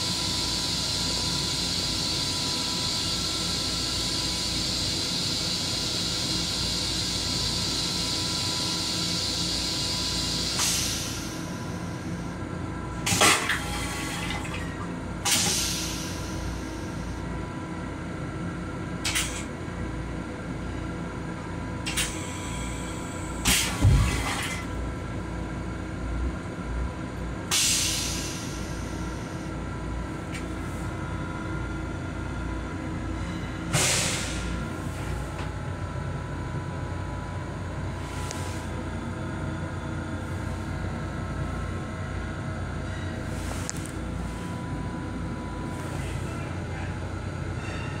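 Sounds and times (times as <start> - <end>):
railcar rumbling: 0.0 - 48.0
toilet flush hissing: 8.8 - 11.7, 13.1 - 16.6.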